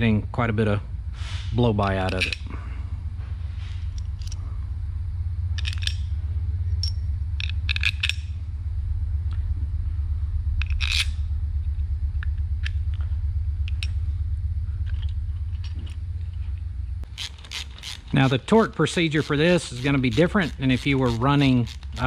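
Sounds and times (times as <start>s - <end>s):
steady low hum: 0.0s - 22.0s
metal parts clicking and clinking: 1.8s - 2.6s, 3.9s - 4.4s, 5.6s - 8.3s, 10.6s - 11.2s, 13.7s - 14.0s, 14.8s - 22.0s.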